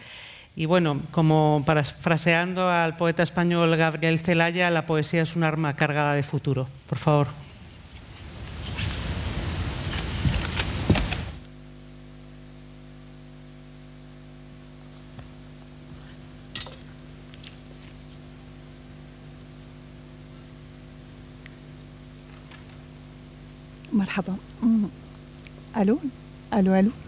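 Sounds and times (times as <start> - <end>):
low electrical hum: 0.0 - 27.0.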